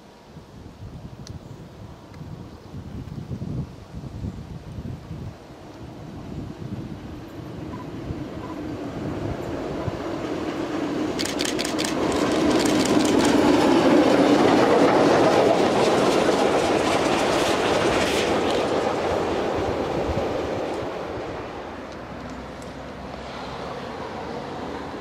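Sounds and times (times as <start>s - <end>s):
steam locomotive passing: 5.0s - 25.0s
wheels clicking over rail joints: 9.6s - 19.2s.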